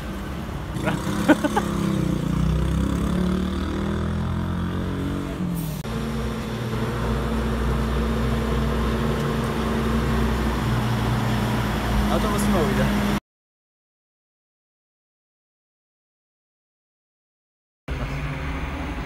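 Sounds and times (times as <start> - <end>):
truck engine low rumble: 0.0 - 1.9, 5.2 - 13.2.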